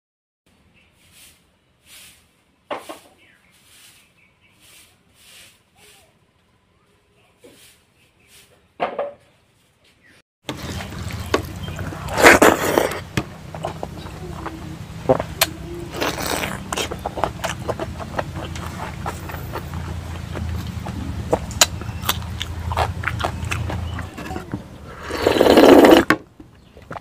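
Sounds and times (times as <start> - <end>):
steady low hum: 10.5 - 25.1
eating with fingers: 10.5 - 27.0
chewing and lip smacks: 12.8 - 24.5.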